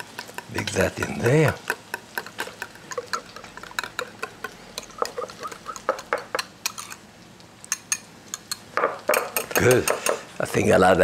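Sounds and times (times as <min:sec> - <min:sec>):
wire whisk scraping glass bowl: 0:02.2 - 0:07.0.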